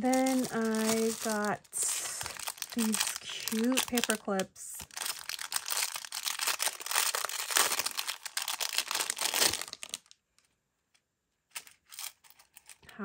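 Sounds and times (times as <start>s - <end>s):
packaging crinkling: 0.0s - 10.4s, 11.5s - 12.8s.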